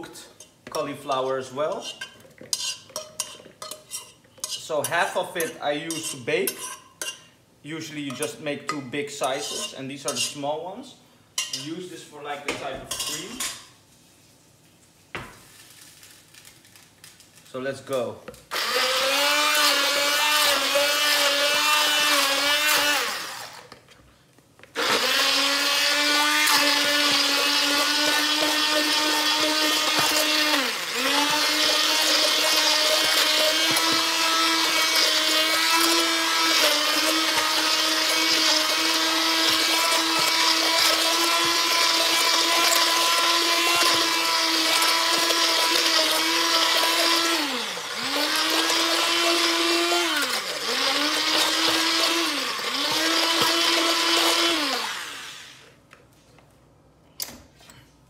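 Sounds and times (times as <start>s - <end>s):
stick blender running: 18.5s - 23.7s, 24.8s - 55.7s.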